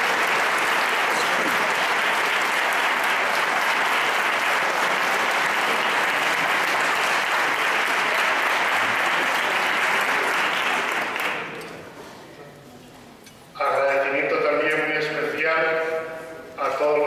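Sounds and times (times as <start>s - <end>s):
crowd applauding: 0.0s - 11.7s.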